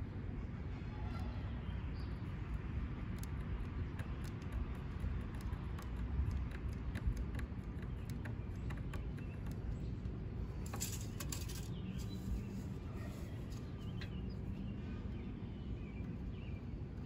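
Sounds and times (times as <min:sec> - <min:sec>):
light ticks and taps: 0:03.0 - 0:10.2.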